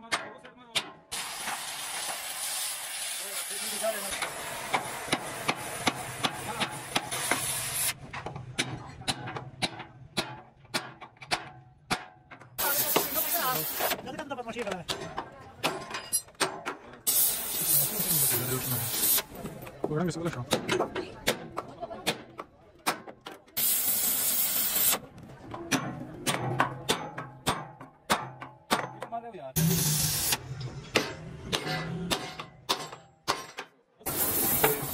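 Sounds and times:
gas torch hissing: 1.1 - 8.0, 12.6 - 14.0, 17.1 - 19.3, 23.6 - 25.0, 29.6 - 30.5, 34.1 - 34.9
hammer striking steel: 4.1 - 14.0, 25.7 - 29.2, 30.1 - 33.8
hammer striking metal rivet: 25.7 - 29.1, 30.9 - 33.8.

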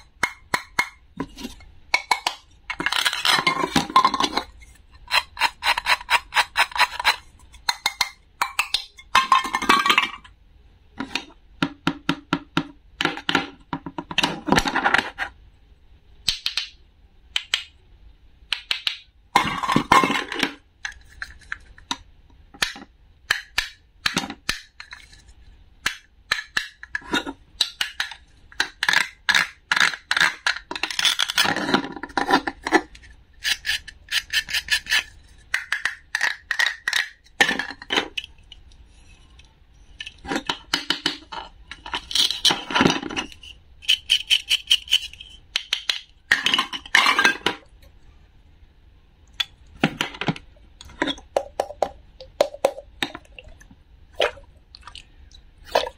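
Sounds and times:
plastic toy pieces clicking: 40.1 - 46.4.

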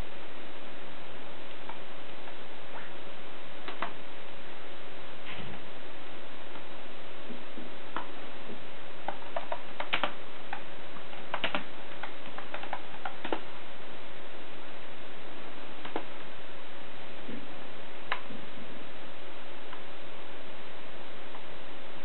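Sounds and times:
steady hiss: 0.0 - 22.0
computer keyboard typing: 9.1 - 13.4.

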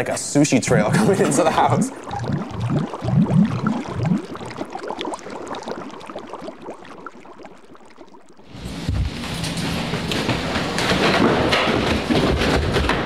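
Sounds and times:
water bubbling: 0.0 - 8.6.

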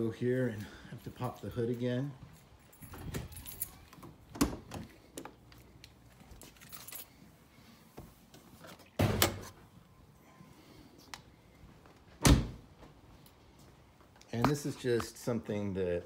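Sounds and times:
car keys jangling: 2.6 - 4.0, 6.4 - 7.2.

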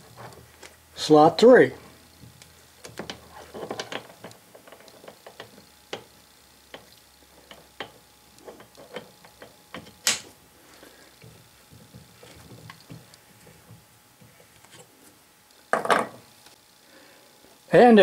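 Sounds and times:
metal clicks and scrapes: 2.3 - 6.1, 6.7 - 10.2.

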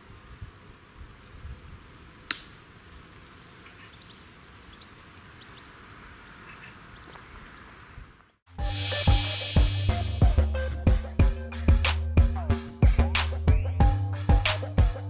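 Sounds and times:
wind rumble on microphone: 0.0 - 2.0
sharp click: 2.3 - 2.5
faint bird chirps: 3.6 - 5.8, 6.4 - 7.2.

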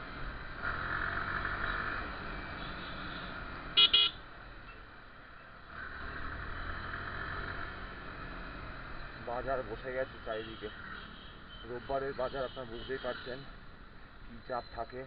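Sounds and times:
vehicle horn toots: 3.8 - 4.2.

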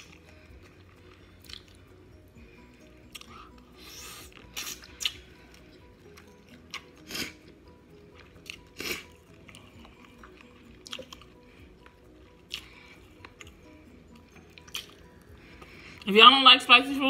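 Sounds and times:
chewing: 0.0 - 1.9, 3.1 - 16.0.

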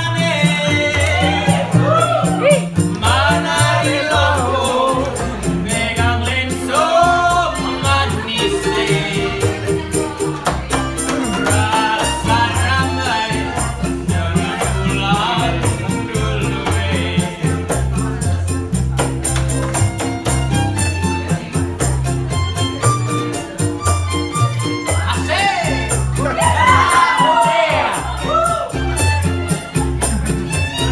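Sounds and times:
people singing: 0.0 - 18.8, 25.2 - 28.7
plucked cello: 0.0 - 27.1, 28.0 - 30.9
small guitars strumming: 0.0 - 30.9
upright double bass: 0.0 - 30.9.

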